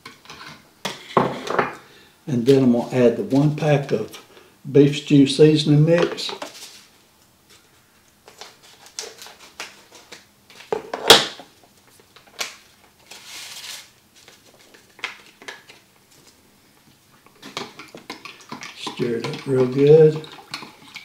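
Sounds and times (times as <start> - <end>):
paper crinkling and rustling: 6.3 - 10.7, 11.8 - 16.4.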